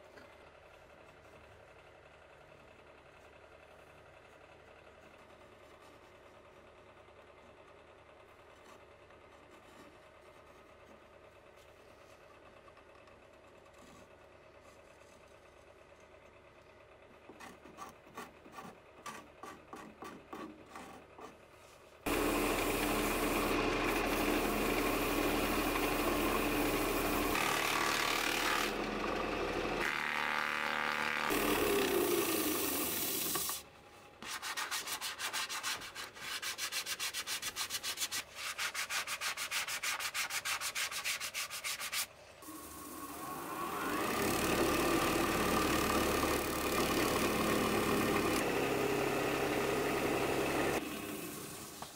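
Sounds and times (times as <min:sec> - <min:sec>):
steel scraper scraping wood: 0:17.3 - 0:21.4
sandpaper rubbing on wood: 0:34.2 - 0:42.1.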